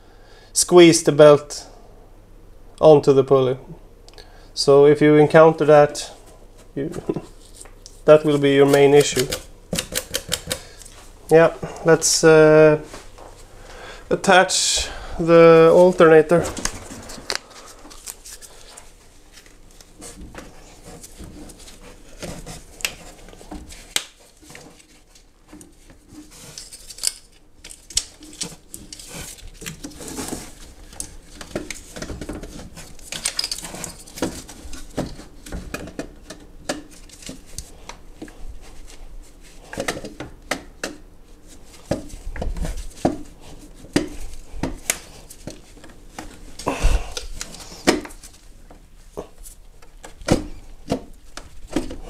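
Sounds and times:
heavy thumps: 14.8 - 18.4
metal clinks and scrapes: 33.2 - 34.2.

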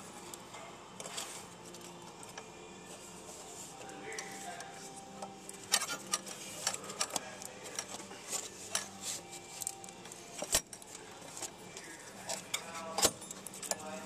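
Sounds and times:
tools clinking: 5.1 - 14.0.

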